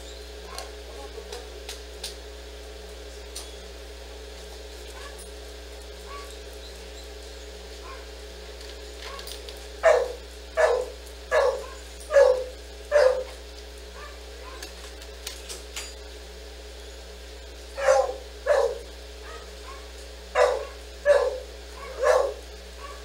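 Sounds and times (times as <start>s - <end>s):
dog barking: 0.5s - 0.7s, 4.9s - 5.3s, 6.0s - 6.4s, 7.8s - 8.1s, 9.1s - 14.8s, 17.8s - 23.0s.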